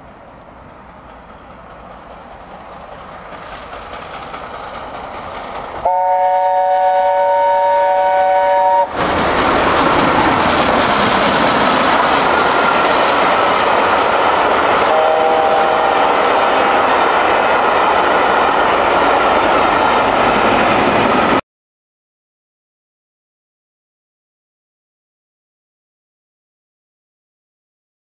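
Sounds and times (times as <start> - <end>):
train passing: 0.0 - 21.4
steam locomotive chime whistle: 5.8 - 8.9, 14.9 - 16.8.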